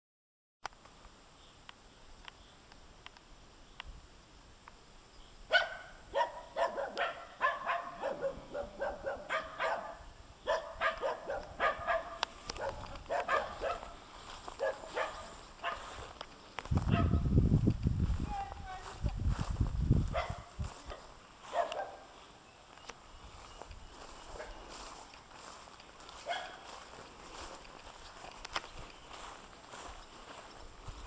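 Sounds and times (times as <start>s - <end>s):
dog barking: 5.5s - 14.0s, 14.6s - 16.0s, 16.9s - 17.2s, 20.1s - 22.1s, 26.2s - 26.7s.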